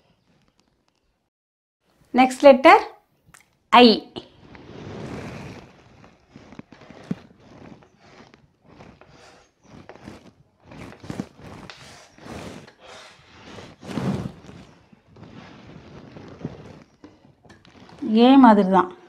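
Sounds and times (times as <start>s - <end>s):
chalk scratching on blackboard: 4.4s - 18.0s.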